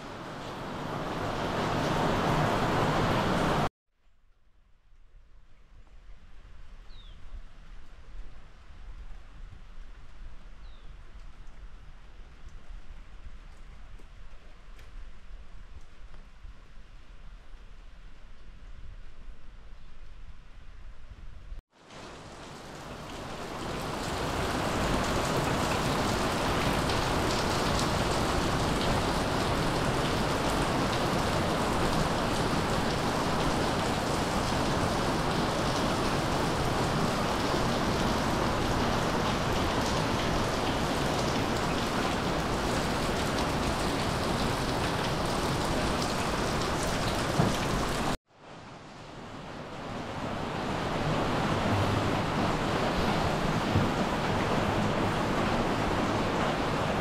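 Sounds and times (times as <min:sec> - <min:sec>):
rain on wooden decking: 0:00.0 - 0:03.7, 0:04.8 - 0:20.8, 0:21.6 - 0:57.0.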